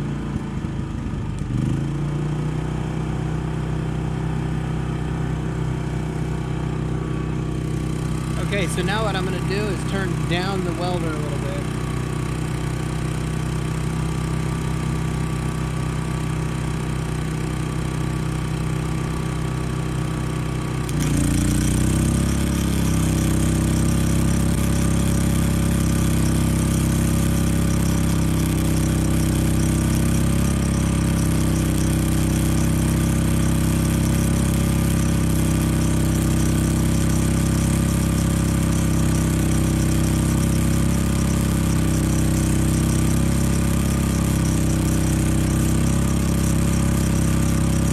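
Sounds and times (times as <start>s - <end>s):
generator engine running: 0.0s - 47.9s
welding arc crackling and hissing: 7.6s - 15.3s, 20.7s - 47.9s.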